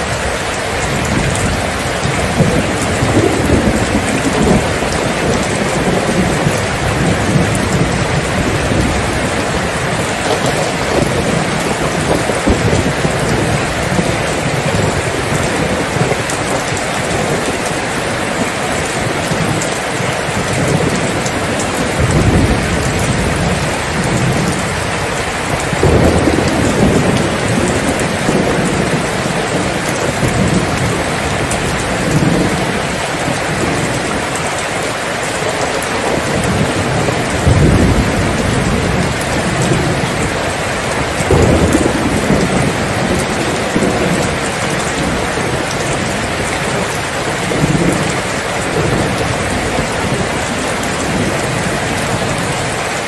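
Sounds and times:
heavy rain falling: 0.0 - 53.0
rolls of thunder: 41.2 - 46.1.

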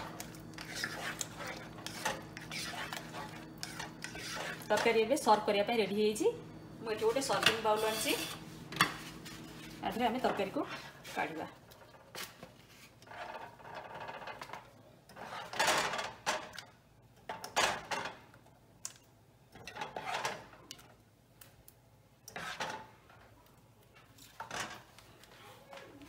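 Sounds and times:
plastic ladle scraping saucepan: 0.0 - 5.0.

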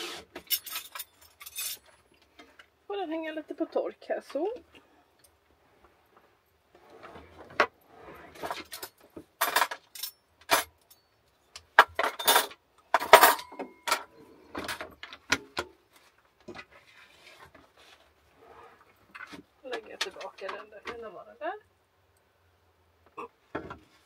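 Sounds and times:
dishes and cutlery clattering: 8.4 - 11.1, 11.7 - 14.9.

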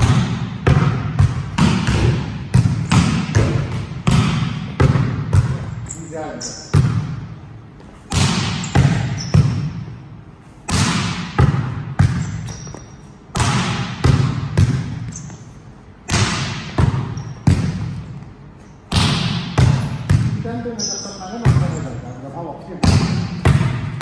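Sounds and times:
heavy thumps ringing in a hall: 0.0 - 24.0.

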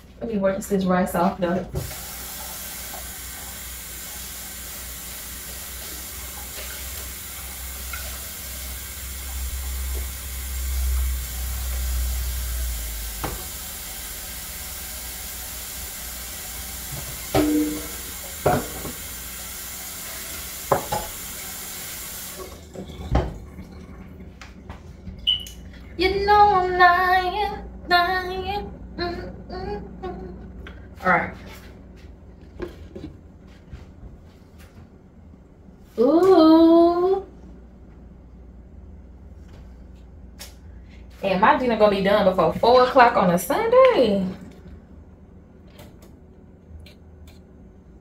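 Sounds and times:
tap running into sink: 13.1 - 13.6, 16.8 - 19.1, 20.3 - 21.2
dishes and utensils knocking: 17.0 - 19.0.

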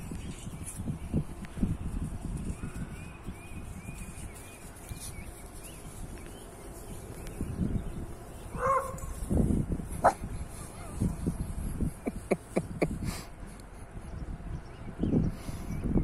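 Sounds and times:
puppies yipping and yelping: 9.9 - 11.2.

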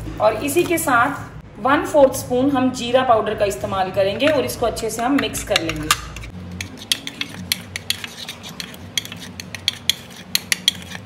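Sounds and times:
spoon scraping a bowl: 5.2 - 11.0.

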